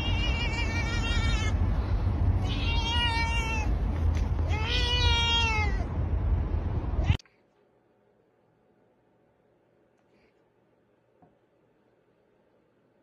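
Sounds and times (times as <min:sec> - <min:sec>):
cat meowing: 0:00.0 - 0:01.6, 0:02.4 - 0:05.9, 0:07.0 - 0:07.2
steady low rumble: 0:00.0 - 0:07.2.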